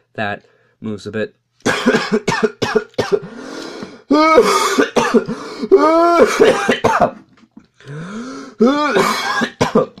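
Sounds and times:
person coughing: 1.6 - 3.4, 4.1 - 7.3, 8.5 - 10.0.

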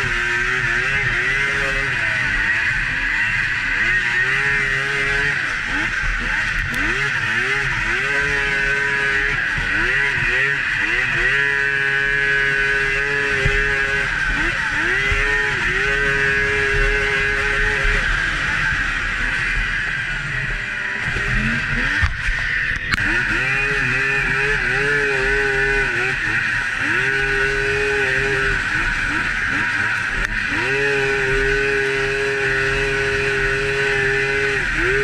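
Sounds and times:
snowmobile engine running hard: 0.0 - 35.0.

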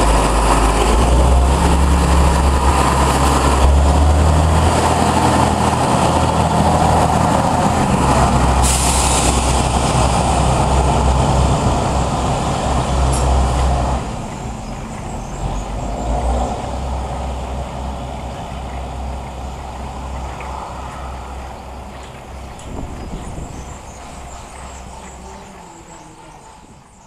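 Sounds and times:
diesel engine rumbling: 0.0 - 27.0
air hiss: 8.6 - 10.2.

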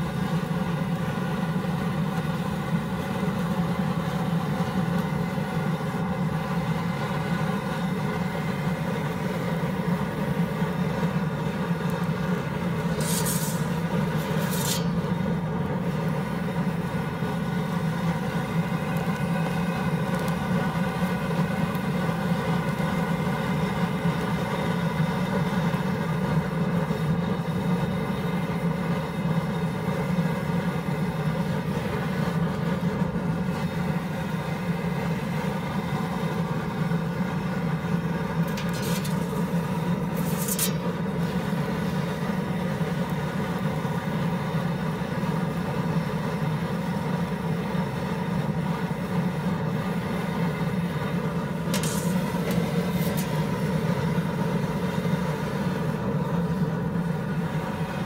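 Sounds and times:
pizza oven burner rumble: 0.0 - 58.0
brief swishes: 13.0 - 15.0, 40.2 - 40.8.

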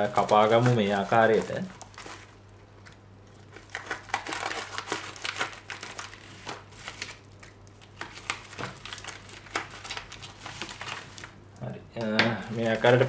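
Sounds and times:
plastic bag crinkling: 0.0 - 11.4, 12.4 - 13.0
scissors cutting plastic: 2.8 - 11.3.

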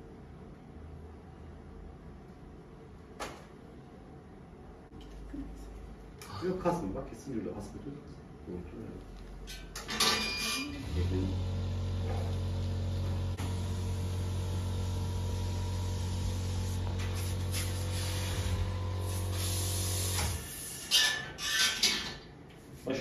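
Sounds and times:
steady low hum: 10.6 - 20.7.

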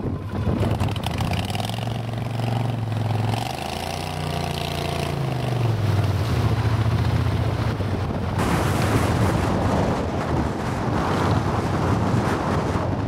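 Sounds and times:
boat motor running: 0.0 - 9.5.

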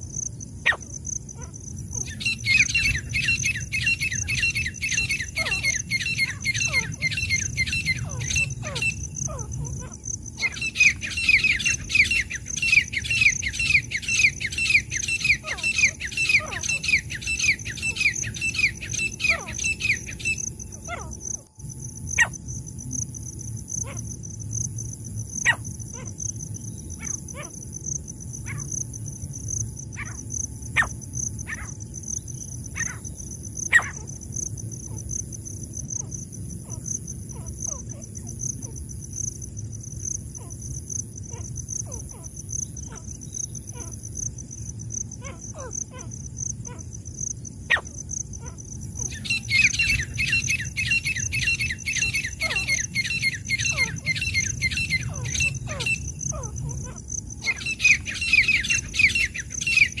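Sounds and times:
francolin calling: 0.0 - 21.5, 30.0 - 35.1, 40.3 - 60.0.

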